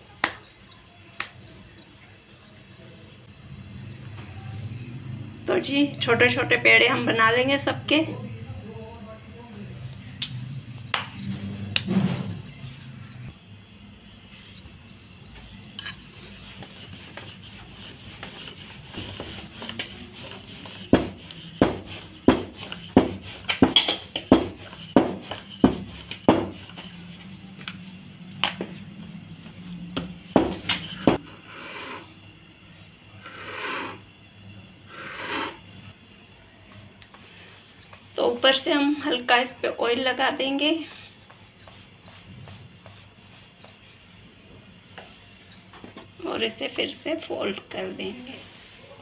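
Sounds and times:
bangles jingling: 0:00.0 - 0:03.6, 0:08.8 - 0:13.4, 0:14.6 - 0:28.0, 0:36.9 - 0:44.4, 0:45.2 - 0:45.7
knife scraping through dough: 0:16.1 - 0:27.3.

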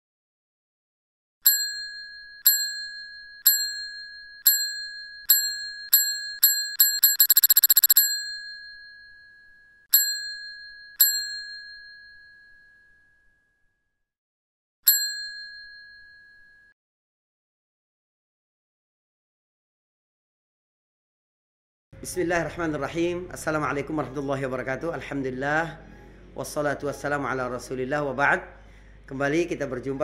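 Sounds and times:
bell ringing: 0:01.5 - 0:13.4, 0:14.9 - 0:16.7.

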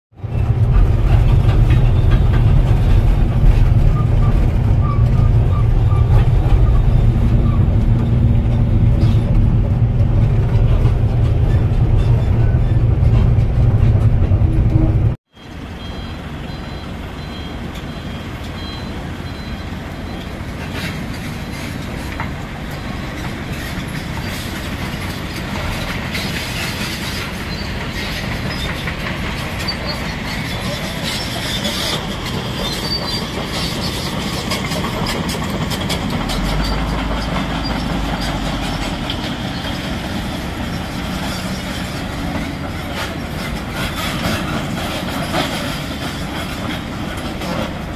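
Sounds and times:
deep engine rumble: 0:00.2 - 0:20.7, 0:27.4 - 0:47.9
heavy machinery running: 0:00.2 - 0:47.9.

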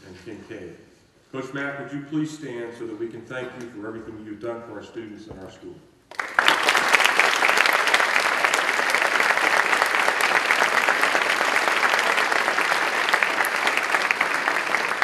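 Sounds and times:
audience applause: 0:06.1 - 0:15.0.

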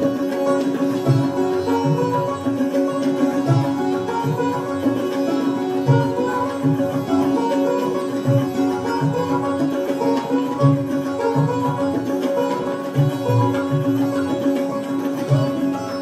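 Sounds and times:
sitar plucked melody: 0:00.0 - 0:16.0.

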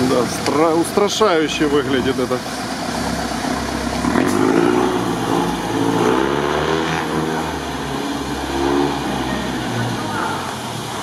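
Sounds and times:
truck engine revving: 0:01.6 - 0:11.0.

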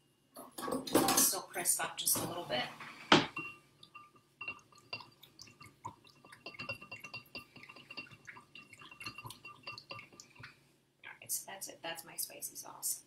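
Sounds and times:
spoon clinking against bowl: 0:03.2 - 0:10.5.

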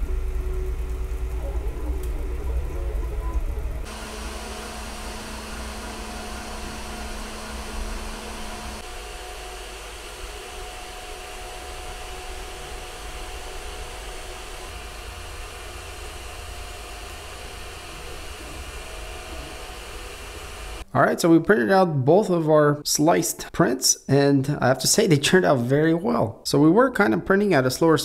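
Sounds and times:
cooling fans whirring: 0:00.0 - 0:20.9
faint machine hum: 0:00.0 - 0:21.3.

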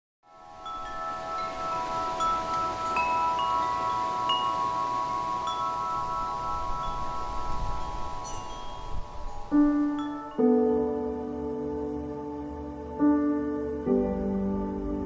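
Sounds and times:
tubular wind chime ringing: 0:00.3 - 0:11.0.

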